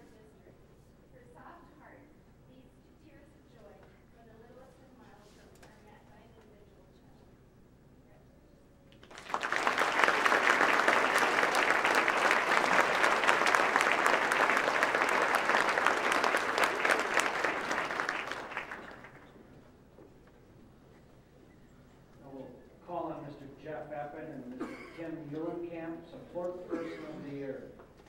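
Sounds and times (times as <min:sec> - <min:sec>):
audience applauding: 0:09.0 - 0:19.4.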